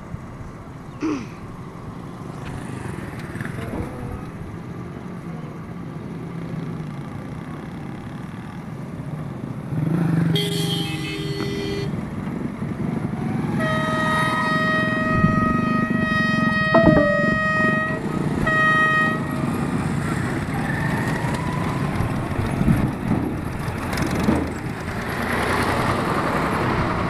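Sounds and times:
vehicle horn honk: 10.4s - 11.9s, 13.6s - 19.4s
locomotive horn: 10.4s - 12.0s, 13.5s - 20.1s.

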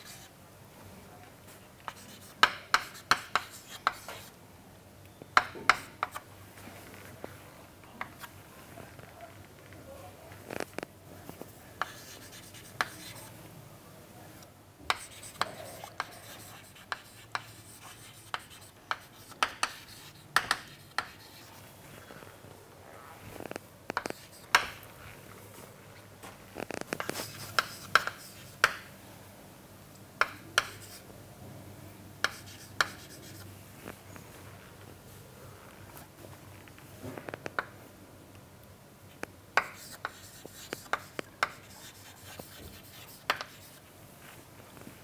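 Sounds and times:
chalk scratching: 0.0s - 0.3s, 1.8s - 4.3s, 11.5s - 13.3s, 14.9s - 21.7s, 24.0s - 24.8s, 27.0s - 28.8s, 30.6s - 31.0s, 32.2s - 33.5s, 39.6s - 43.8s
chalk tapping on chalkboard: 1.8s - 4.3s, 5.4s - 6.2s, 11.8s - 13.2s, 14.9s - 21.5s, 24.0s - 24.8s, 26.9s - 28.9s, 30.2s - 31.0s, 32.2s - 33.4s, 39.6s - 43.8s.

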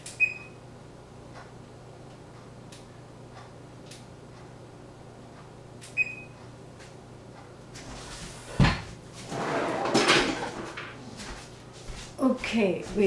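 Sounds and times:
scraping and rustling: 7.8s - 11.8s.

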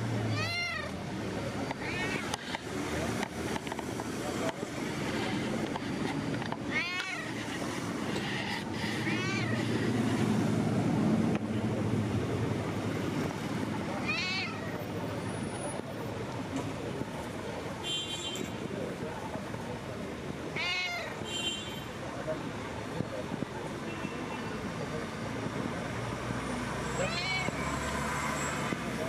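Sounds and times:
low traffic rumble: 0.0s - 29.0s
cat meowing: 0.3s - 1.0s, 1.7s - 2.5s, 6.6s - 7.4s, 9.0s - 9.7s, 14.0s - 14.8s, 20.5s - 21.2s, 27.0s - 27.6s.

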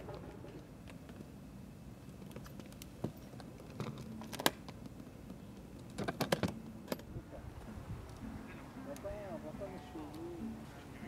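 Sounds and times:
metal latches clicking open: 3.7s - 4.8s, 5.8s - 7.1s.

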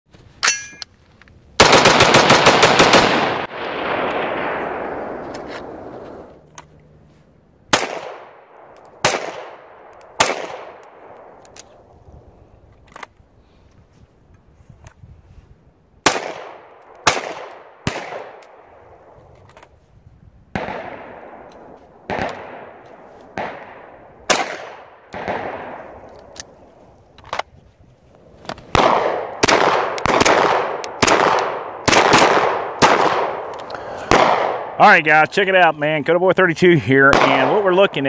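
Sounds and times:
pistol shots echoing: 1.6s - 6.2s, 7.7s - 11.4s, 16.0s - 18.6s, 20.5s - 26.1s, 28.7s - 34.8s, 37.0s - 38.0s.

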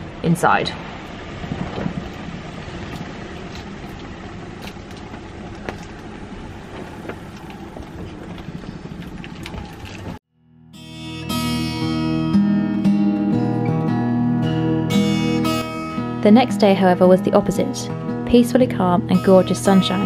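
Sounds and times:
rain on a cabin roof: 0.0s - 10.2s.

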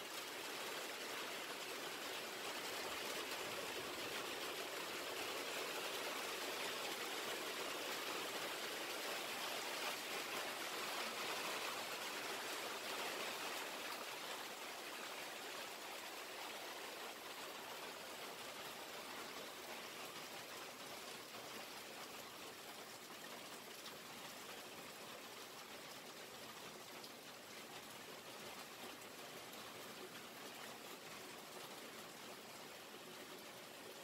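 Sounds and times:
heavy rain pouring: 0.0s - 21.7s.

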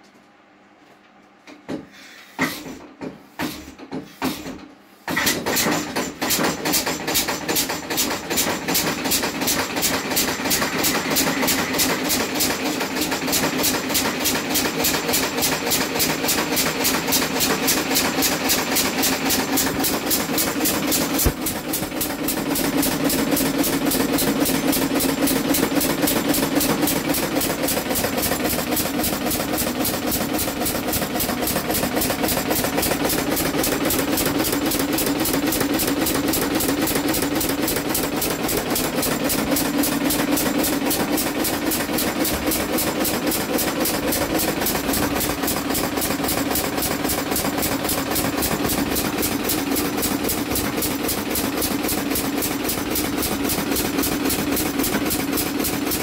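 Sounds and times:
engine starting and running: 4.4s - 56.0s.

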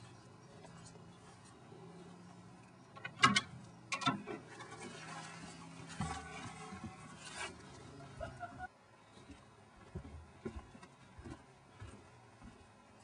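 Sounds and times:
footsteps on wooden stairs: 9.2s - 13.0s.

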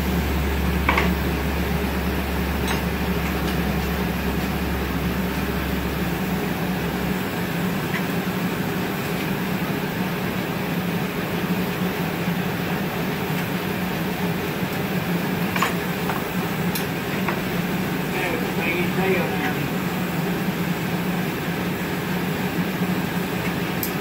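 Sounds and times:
deep hum: 0.0s - 7.6s
furnaces and fans roaring: 0.0s - 24.0s.

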